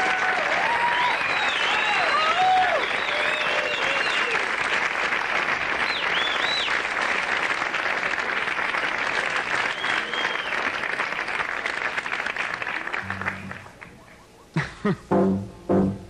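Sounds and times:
audience applauding: 0:00.0 - 0:14.2
whistle from crowd: 0:01.1 - 0:04.4, 0:05.8 - 0:06.8, 0:09.7 - 0:10.7
low steady instrument notes: 0:13.0 - 0:14.0, 0:15.0 - 0:16.0.

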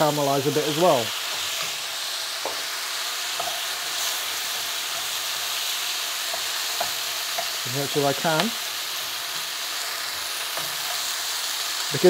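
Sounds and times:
food sizzling in a hot pan: 0:00.0 - 0:12.0
wooden spatula knocking pan: 0:02.4 - 0:02.7.

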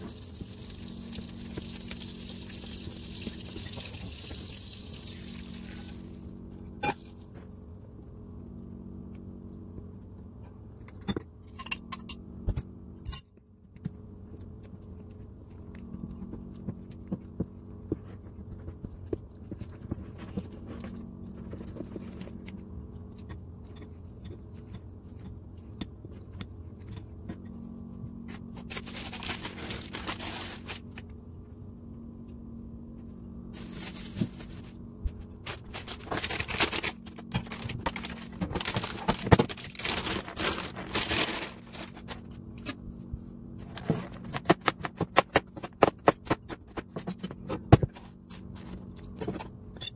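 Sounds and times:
low hum: 0:00.0 - 0:49.9.

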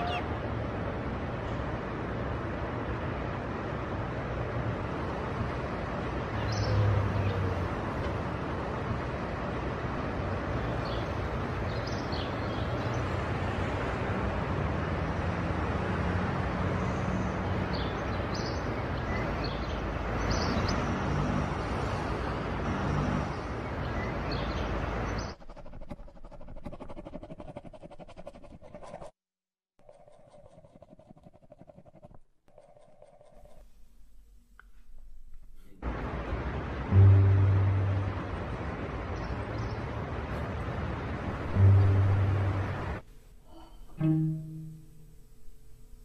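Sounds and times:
distant city traffic: 0:00.0 - 0:25.7, 0:34.9 - 0:46.0.

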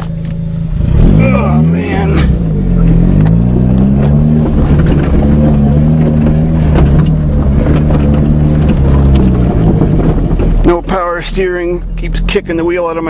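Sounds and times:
car engine running: 0:00.0 - 0:13.0
clicks and rattles: 0:03.2 - 0:10.8.

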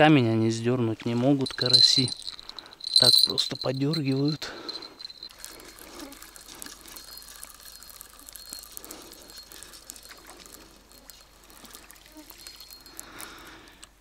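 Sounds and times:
crickets chirping: 0:01.4 - 0:13.8
fishing reel clicking: 0:04.0 - 0:13.3
gentle water lapping: 0:04.6 - 0:13.5.

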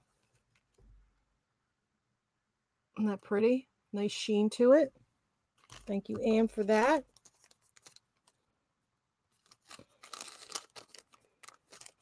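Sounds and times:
packaging crinkling and rustling: 0:05.6 - 0:08.5, 0:09.3 - 0:12.0.

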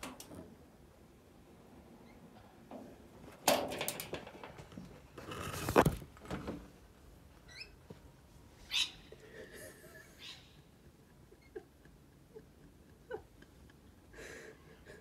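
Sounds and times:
lorikeet chirps: 0:08.7 - 0:09.0.

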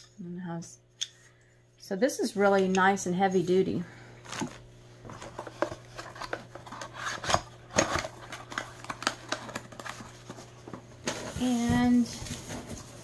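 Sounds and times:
gadgets and packaging handled: 0:04.2 - 0:13.0.

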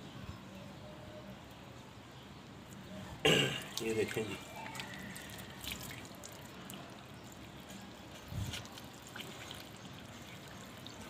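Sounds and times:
water trickling and dripping: 0:03.6 - 0:11.0.

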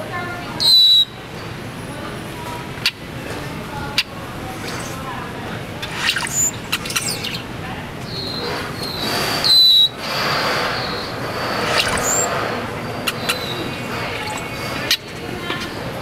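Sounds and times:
people talking: 0:00.0 - 0:08.8, 0:11.7 - 0:16.0
high thin bird whistles: 0:05.9 - 0:07.4.

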